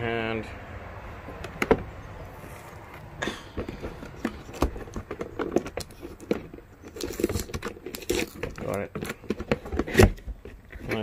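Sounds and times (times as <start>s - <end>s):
cardboard flaps tapping and scraping: 3.6s - 11.0s.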